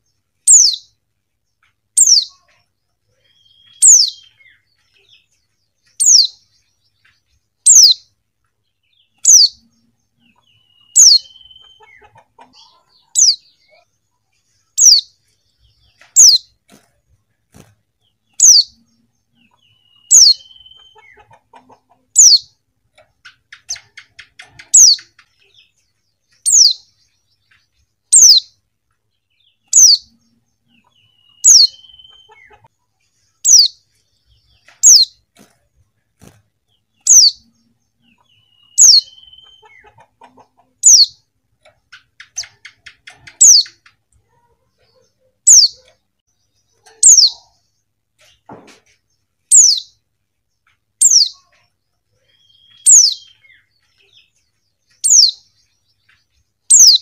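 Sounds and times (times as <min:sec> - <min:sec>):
faint bird chatter: 0:00.0 - 0:57.0.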